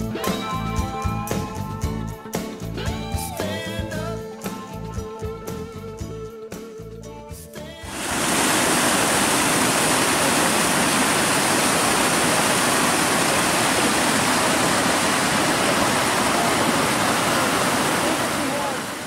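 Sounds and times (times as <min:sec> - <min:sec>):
water cascading over rocks: 0:07.9 - 0:19.0.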